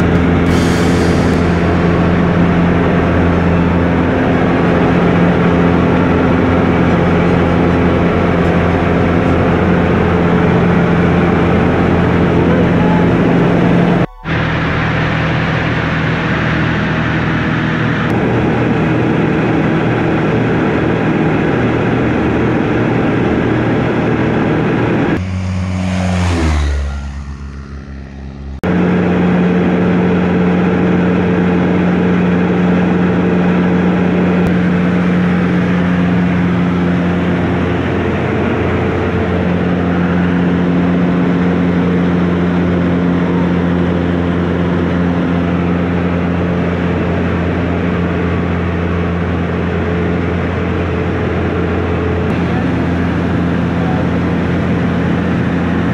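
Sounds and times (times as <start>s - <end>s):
propeller aircraft engine drone: 0.0s - 55.9s.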